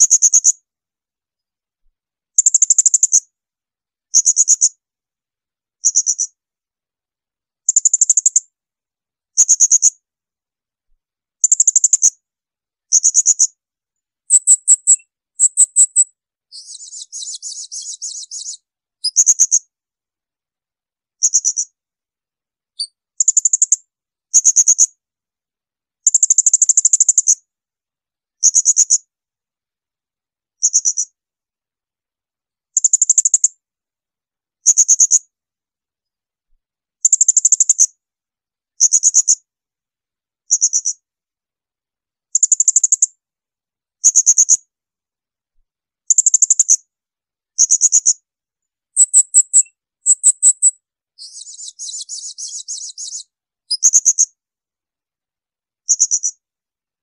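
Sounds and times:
quiet buzzy bird chatter: 0.0s - 0.6s, 4.1s - 4.8s, 5.8s - 6.4s, 9.4s - 9.9s, 12.9s - 13.6s, 14.3s - 19.6s, 21.2s - 21.8s, 30.6s - 31.1s, 44.0s - 44.6s, 47.6s - 48.2s, 49.0s - 54.3s, 55.9s - 56.4s.

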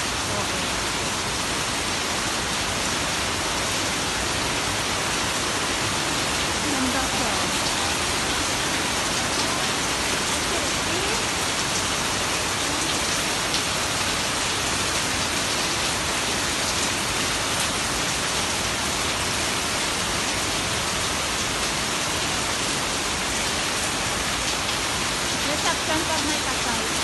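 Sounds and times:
steady hiss of heavy rain: 0.0s - 27.0s
raindrops ticking close by: 5.2s - 15.5s, 24.4s - 27.0s.

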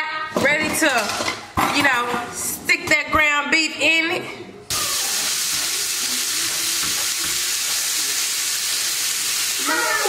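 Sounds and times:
meat sizzling in a skillet: 4.7s - 10.0s.

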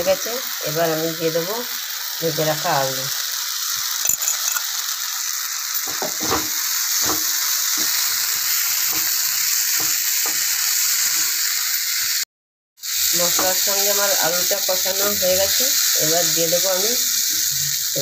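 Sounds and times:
potatoes sizzling in hot oil: 0.0s - 18.0s
spatula scraping and knocking pan: 5.8s - 11.4s, 13.2s - 13.8s.

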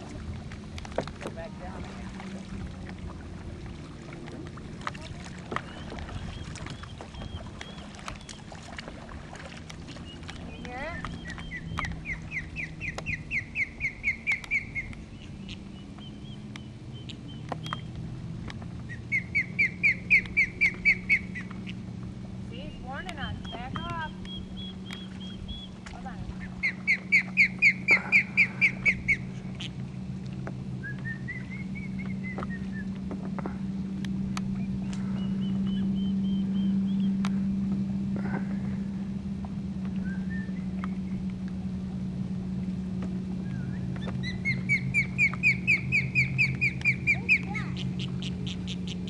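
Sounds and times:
osprey alarm calls: 5.0s - 8.6s, 9.9s - 17.9s, 18.8s - 29.9s, 43.4s - 49.0s
soft bird chirps: 5.6s - 8.5s, 10.0s - 18.0s, 18.8s - 21.8s, 22.6s - 25.8s, 30.8s - 32.9s, 34.5s - 37.2s, 43.4s - 49.0s
osprey alarm whistles: 30.8s - 33.0s, 40.0s - 41.1s.

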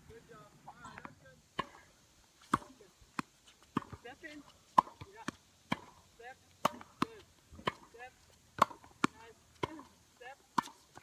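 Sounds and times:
tennis ball struck by rackets: 1.0s - 11.0s
ball bouncing on court: 2.4s - 6.0s, 6.6s - 8.0s, 8.6s - 11.0s.

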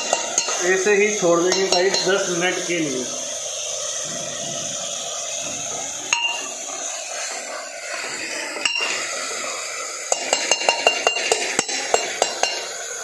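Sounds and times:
metal utensils clinking on pot: 0.0s - 2.2s, 6.1s - 6.4s, 8.6s - 9.0s, 10.1s - 12.8s
chicken and onions sizzling: 0.0s - 13.0s.

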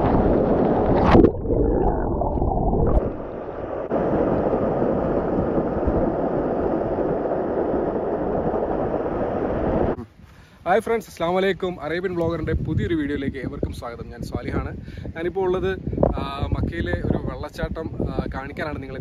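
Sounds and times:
muffled water gurgling: 0.0s - 10.0s.

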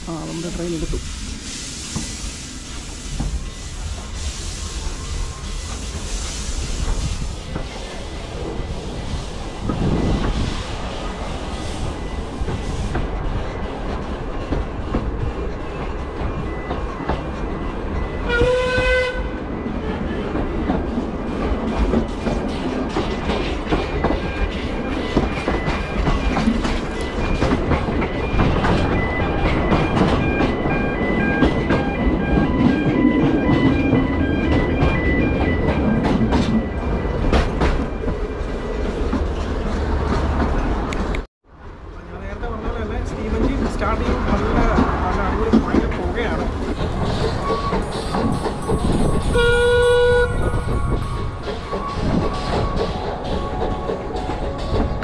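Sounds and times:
train rumble with wheel clicks: 0.0s - 55.0s
steam whistle blast: 18.3s - 19.3s, 49.3s - 50.5s.

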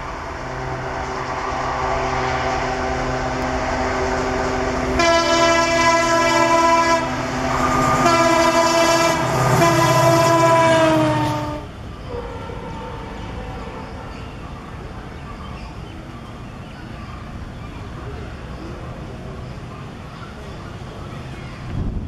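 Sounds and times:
diesel locomotive engine drone: 0.0s - 22.0s
locomotive horn blasts: 4.9s - 12.8s.

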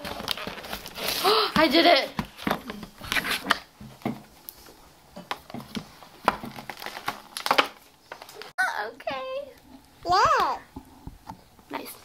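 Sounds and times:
plastic bag crinkling: 0.0s - 2.0s, 6.4s - 8.5s.

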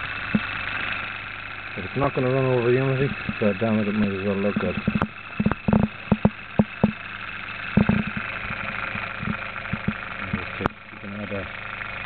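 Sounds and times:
electric motor humming: 0.0s - 12.0s
rotor vibrating: 0.0s - 12.0s
sharp knocks: 4.7s - 7.0s, 7.8s - 8.3s, 9.2s - 10.4s.

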